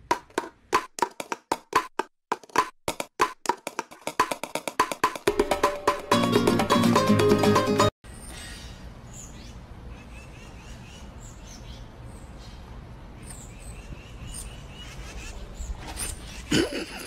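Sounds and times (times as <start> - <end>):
small birds chirping: 8.2 - 16.5.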